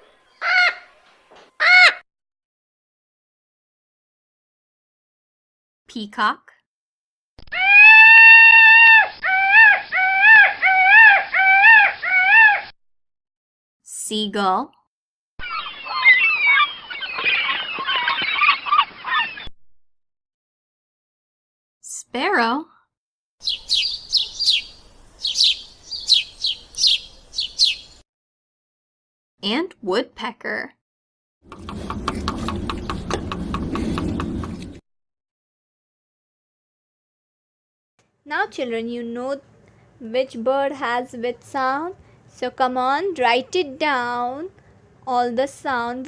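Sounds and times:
peacock calling: 0:07.5 - 0:12.7, 0:15.4 - 0:19.5, 0:23.4 - 0:28.0
sparrow chirping: 0:15.4 - 0:19.5, 0:23.4 - 0:28.0.

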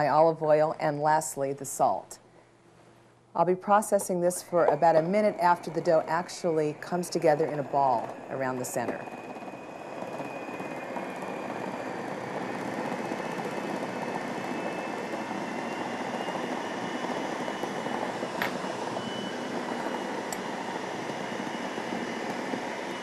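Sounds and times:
food processor motor running: 0:04.6 - 0:23.0.

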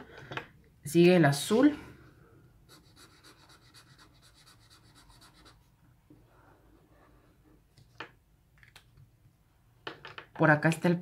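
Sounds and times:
felt marker scratching on paper: 0:02.7 - 0:05.6.

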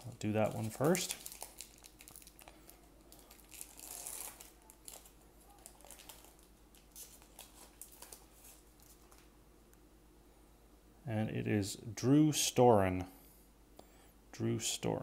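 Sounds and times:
foil wrapper crinkling: 0:00.0 - 0:09.3.

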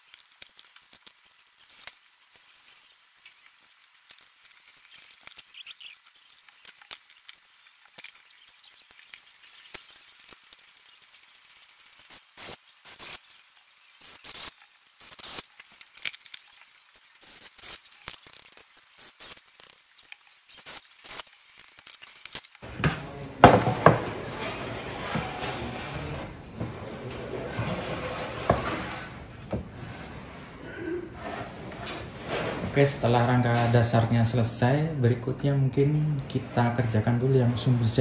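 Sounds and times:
loud knocks: 0:22.7 - 0:24.4.

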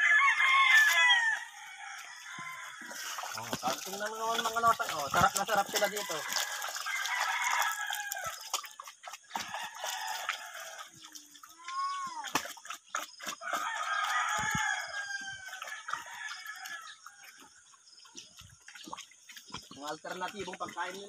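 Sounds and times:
rooster crowing: 0:00.0 - 0:03.3, 0:05.6 - 0:08.4, 0:09.4 - 0:11.0, 0:13.4 - 0:17.3
pig eating wet feed: 0:00.0 - 0:21.0.

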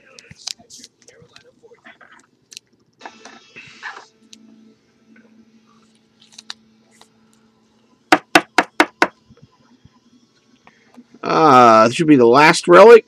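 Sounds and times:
sharp knocks: 0:08.1 - 0:09.2.

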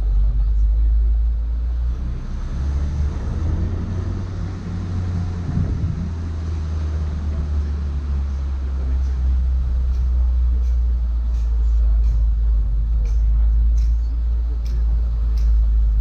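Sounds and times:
jeep engine rumbling: 0:00.0 - 0:16.0
wind noise: 0:02.8 - 0:07.3.

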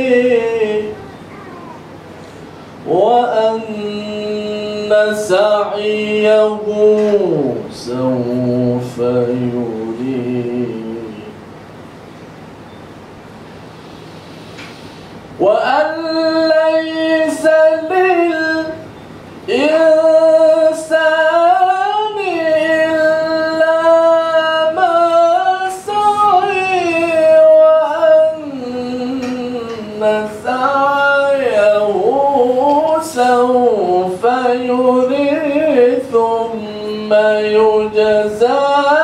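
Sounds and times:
man chanting through a microphone: 0:00.0 - 0:01.2, 0:02.8 - 0:11.4, 0:15.4 - 0:18.9, 0:19.5 - 0:39.0.

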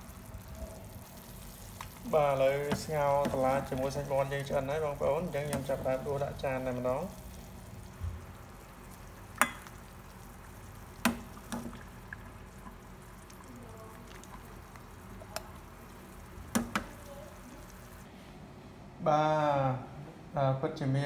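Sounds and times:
broth pouring and dripping: 0:00.0 - 0:18.1
metal ladle clinking on pot: 0:09.4 - 0:09.7.

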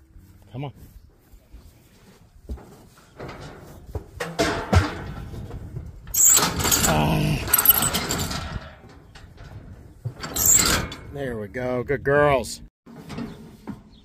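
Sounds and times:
metal gates clanging and rattling: 0:02.6 - 0:11.4.

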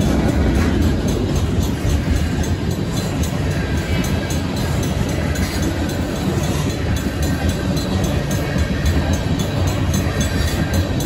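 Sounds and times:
crossing bell dinging: 0:00.0 - 0:11.0
train wheels rumbling on rails: 0:00.0 - 0:11.0.

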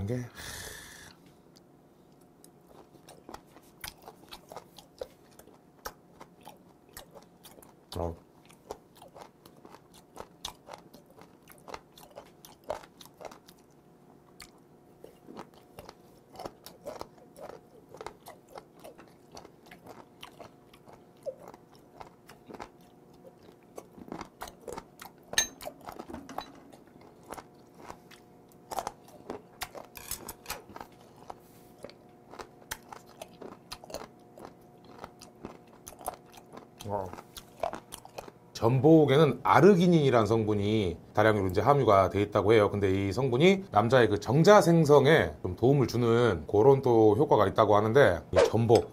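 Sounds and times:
crunchy chewing: 0:02.1 - 0:38.5.

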